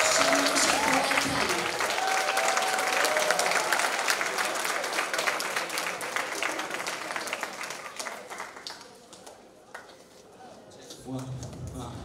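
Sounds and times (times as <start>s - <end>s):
audience applause: 0.0s - 9.1s.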